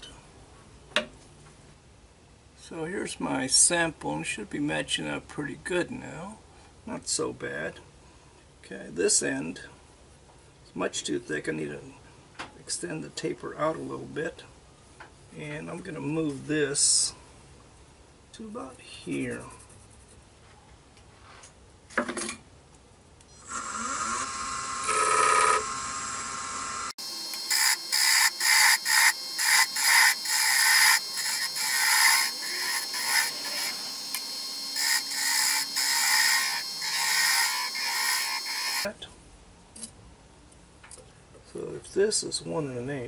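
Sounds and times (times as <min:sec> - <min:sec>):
lathe motor whine: 0:23.4 - 0:38.9
turning tool scraping wood: 0:27.0 - 0:38.9.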